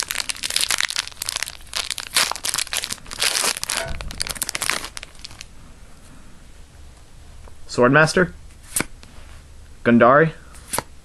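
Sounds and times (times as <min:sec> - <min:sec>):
foil wrapper crinkling: 0:00.0 - 0:05.5.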